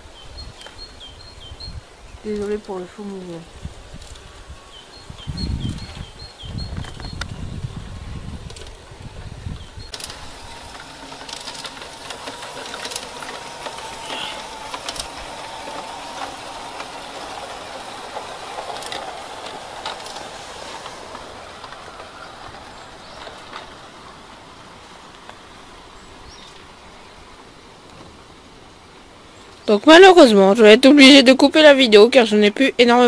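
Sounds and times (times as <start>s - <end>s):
wheels clicking over rail joints: 2.3s - 33.0s
faint motor whine: 9.3s - 27.2s
model train running: 9.3s - 33.0s.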